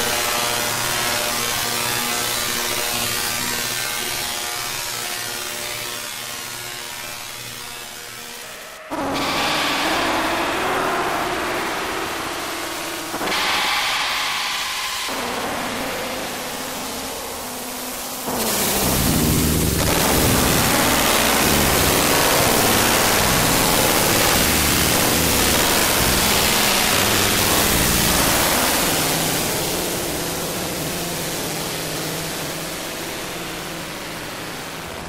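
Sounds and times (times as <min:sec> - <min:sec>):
hiss-like electronic noise texture: 0:00.0 - 0:35.0
low droning tones: 0:08.0 - 0:35.0.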